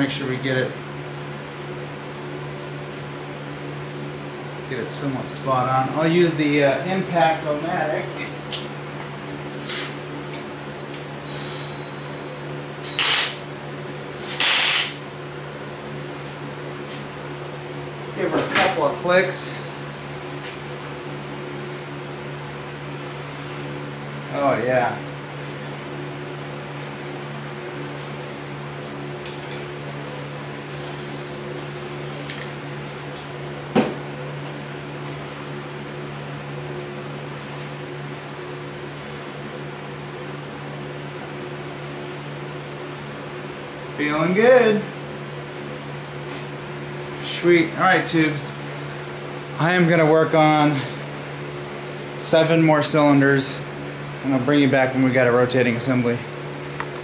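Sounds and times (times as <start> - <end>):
steady low hum: 0.0 - 57.0
aerosol spray can hissing: 30.7 - 32.4.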